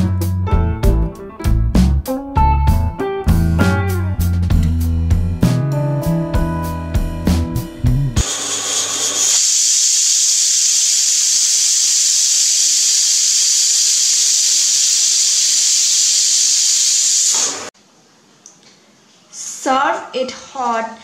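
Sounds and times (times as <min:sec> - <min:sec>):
pressure cooker whistle hissing: 0:08.2 - 0:17.7.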